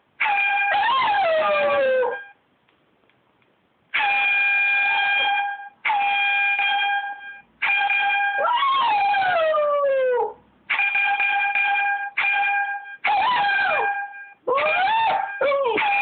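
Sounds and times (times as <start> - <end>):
dog howling: 0.2 - 2.2, 8.4 - 10.4, 13.0 - 16.0.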